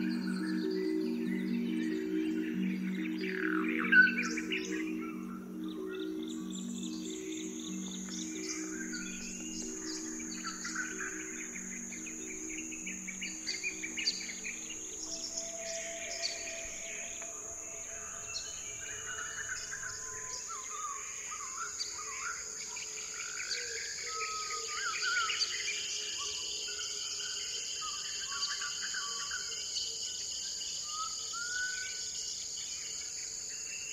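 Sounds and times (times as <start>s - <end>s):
birds chirping and whistling: 0.0s - 29.4s
insect drone: 0.0s - 33.9s.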